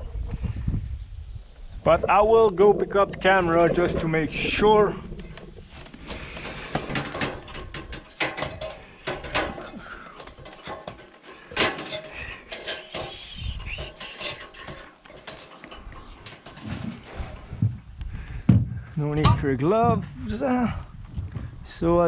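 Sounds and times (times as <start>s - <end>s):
metal ladder clanking: 6.3s - 17.6s, 19.1s - 20.1s.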